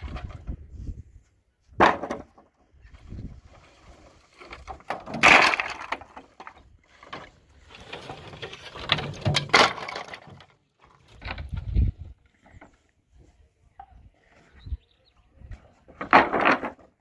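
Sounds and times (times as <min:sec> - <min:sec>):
wooden boards clattering: 0:01.8 - 0:12.8, 0:15.6 - 0:17.0.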